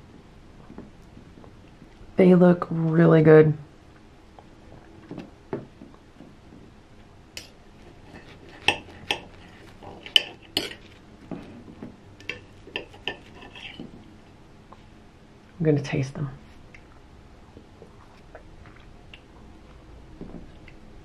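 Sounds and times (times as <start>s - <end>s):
knife and fork scraping a plate: 7.8s - 11.0s, 12.2s - 13.9s.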